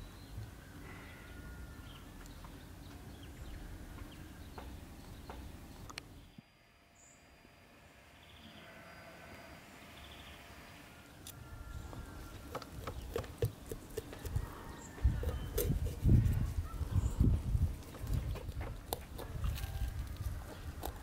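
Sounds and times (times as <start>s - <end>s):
knife cutting raw chicken: 12.5s - 16.5s.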